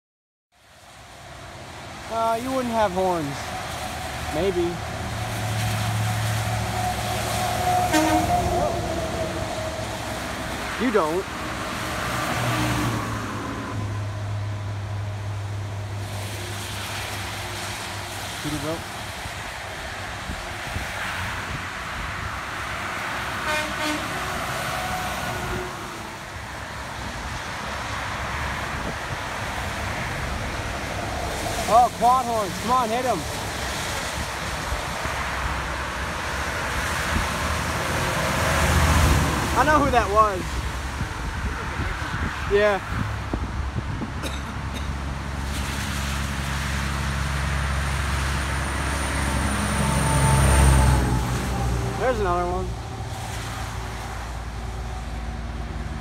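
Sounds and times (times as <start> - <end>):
traffic on wet highway: 0.6 - 56.0
diesel truck engine drone: 1.0 - 42.2, 42.8 - 56.0
truck air horn blasts: 6.6 - 9.6, 23.4 - 26.0.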